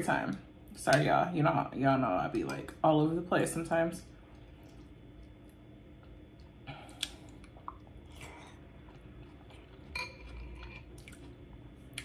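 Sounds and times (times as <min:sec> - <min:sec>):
person chewing food: 0:04.2 - 0:12.0
wet mouth clicks: 0:06.8 - 0:07.9.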